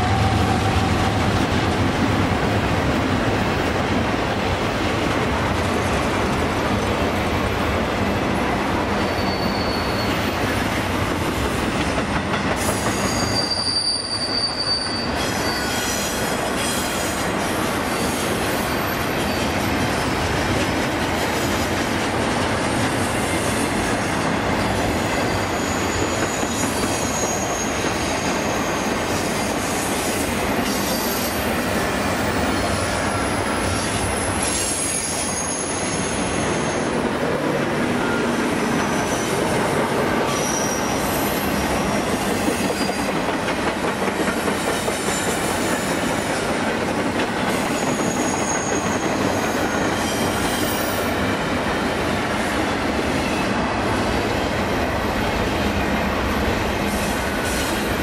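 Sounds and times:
train wheels rumbling and rattling: 0:00.0 - 0:58.0
high-pitched wheel squeal: 0:09.0 - 0:10.5, 0:12.6 - 0:17.0, 0:25.2 - 0:29.0, 0:30.7 - 0:31.5, 0:32.3 - 0:37.0, 0:40.3 - 0:41.6, 0:47.8 - 0:51.1.

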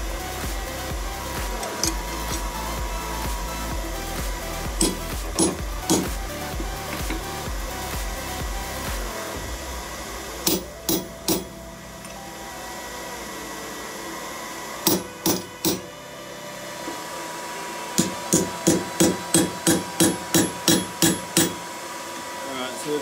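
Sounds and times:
hammer striking punch on anvil: 0:04.8 - 0:06.1, 0:10.4 - 0:11.5, 0:14.9 - 0:15.9, 0:18.0 - 0:21.6.

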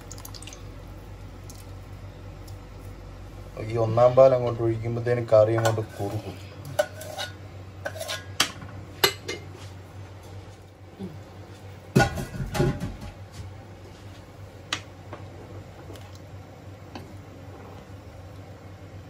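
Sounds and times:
utensils clinking on metal pot: 0:06.7 - 0:09.4.

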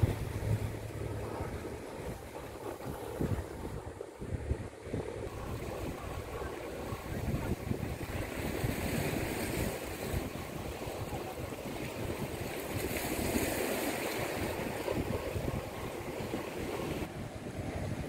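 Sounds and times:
wind buffeting microphone: 0:00.0 - 0:18.0
small waves breaking on rocks: 0:05.3 - 0:17.1.

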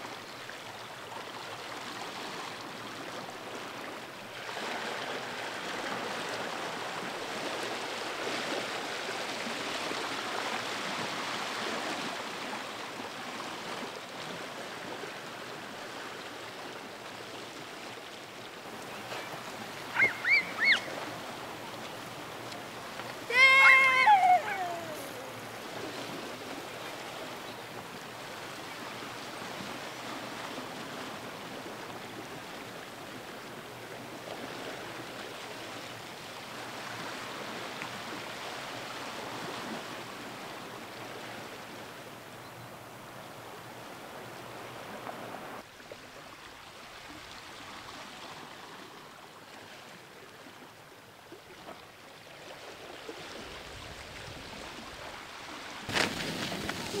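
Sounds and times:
rushing outdoor noise: 0:18.5 - 0:31.2.

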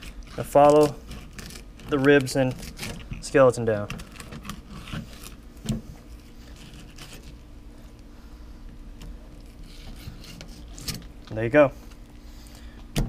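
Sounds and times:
knife slicing and scraping: 0:04.1 - 0:07.4, 0:09.4 - 0:11.1.

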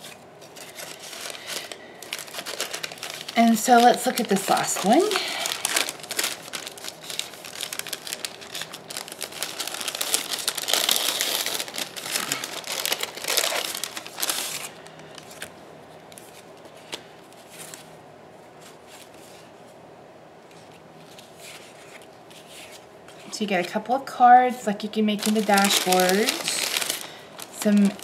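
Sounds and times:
crinkly wrapping crumpled: 0:00.0 - 0:15.5, 0:20.5 - 0:23.8, 0:25.1 - 0:28.0.

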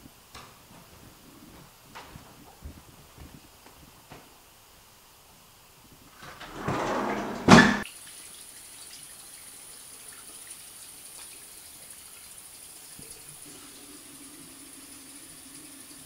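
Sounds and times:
sink tap running water: 0:06.3 - 0:16.0.

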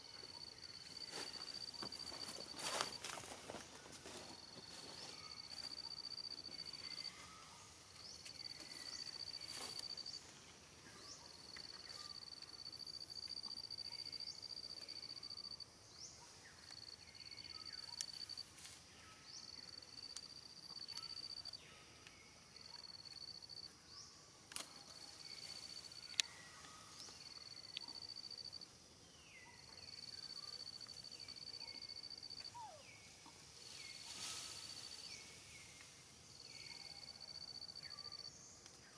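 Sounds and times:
insect trilling: 0:19.4 - 0:21.6.

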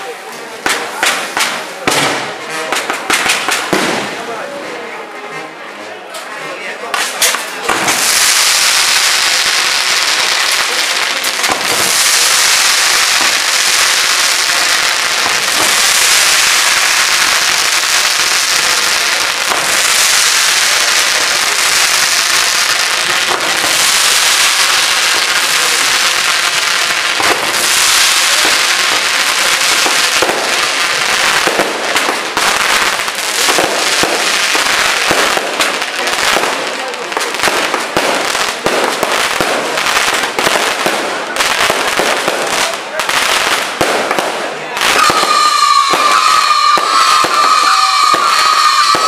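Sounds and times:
fireworks crackling and popping: 0:00.0 - 0:49.0
rockets rising with a hiss: 0:44.8 - 0:49.0.

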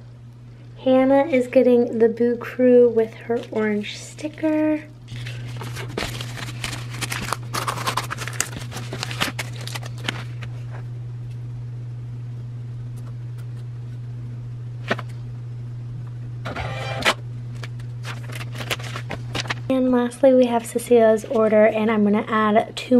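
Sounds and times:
steady low hum: 0:00.0 - 0:22.9
plastic packaging crinkling: 0:03.2 - 0:10.6, 0:17.6 - 0:19.7.

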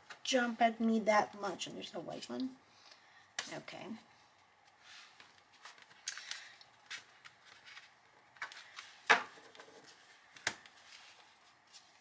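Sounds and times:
cards shuffling and rustling: 0:04.6 - 0:12.0.

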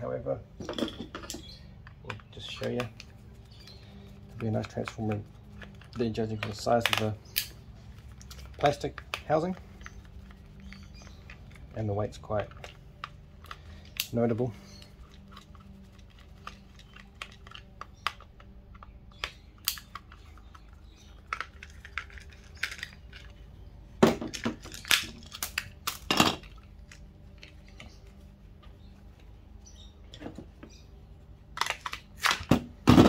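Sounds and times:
plastic and tools clattering: 0:00.6 - 0:03.0.

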